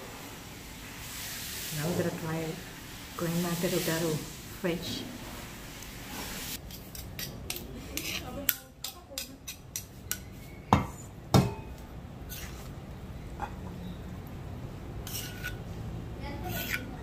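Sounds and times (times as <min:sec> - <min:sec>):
dishes and cutlery clinking: 0:13.4 - 0:13.8.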